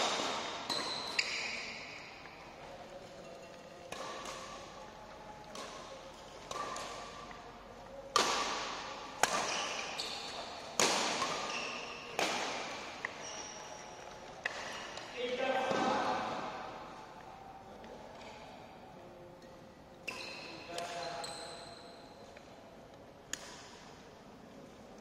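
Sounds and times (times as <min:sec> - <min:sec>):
rackets striking shuttlecock: 0:00.0 - 0:02.4, 0:03.4 - 0:04.8, 0:05.4 - 0:16.7, 0:20.0 - 0:22.0, 0:23.3 - 0:23.9.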